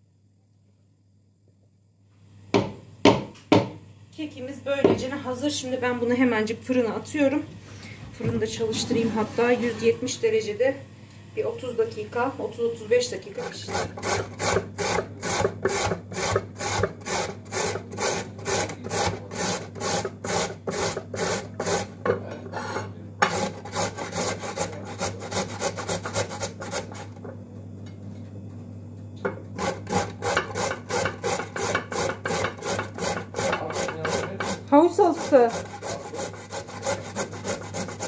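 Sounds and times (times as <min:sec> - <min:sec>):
carrot grated on metal grater: 0:13.3 - 0:22.0, 0:23.2 - 0:27.2, 0:29.6 - 0:38.0.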